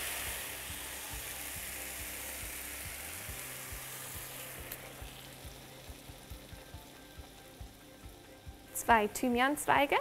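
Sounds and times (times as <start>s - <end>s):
sauce sizzling in hot pan: 0.0s - 10.0s.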